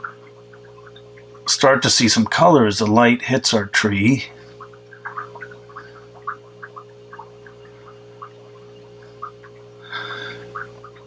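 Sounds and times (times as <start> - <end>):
steady low hum: 0.0 - 11.0
breathy hiss: 9.8 - 10.5.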